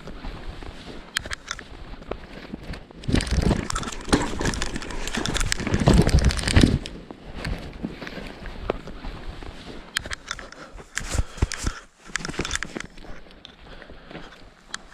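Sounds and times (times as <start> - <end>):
body tumbling on forest ground: 0.0 - 10.0
rustling: 0.0 - 14.9.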